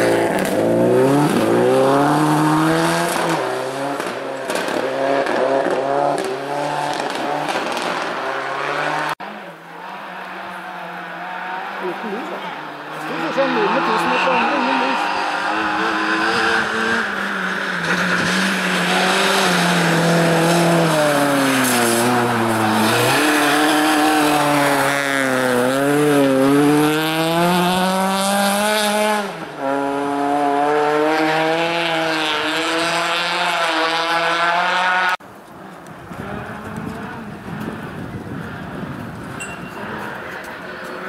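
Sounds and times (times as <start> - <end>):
rally car engine revving: 0.0 - 35.2, 36.0 - 41.0.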